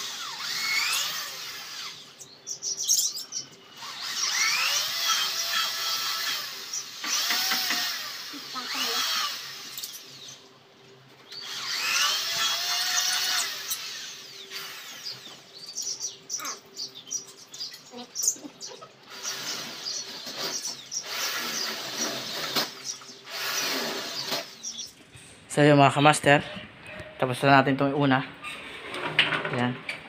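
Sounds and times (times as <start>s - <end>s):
cordless drill motor: 0.0s - 2.2s, 3.7s - 10.4s, 11.2s - 16.0s, 19.0s - 24.9s.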